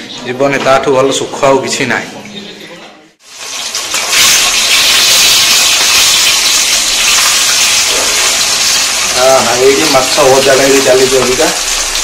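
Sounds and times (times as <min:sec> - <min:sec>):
fish sizzling in hot oil: 0:03.2 - 0:12.0.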